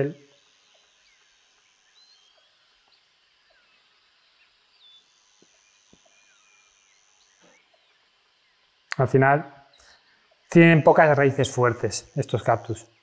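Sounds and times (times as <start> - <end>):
faint bird chirps: 0.0 - 10.5
faint high whine: 0.0 - 13.0.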